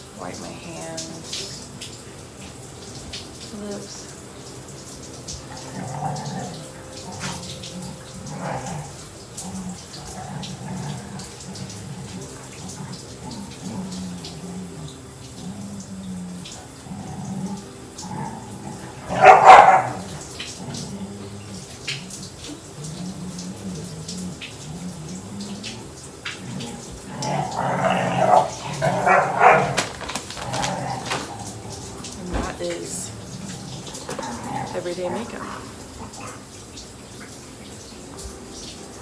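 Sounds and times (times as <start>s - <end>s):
dog barking: 19.0s - 20.2s, 28.2s - 29.8s.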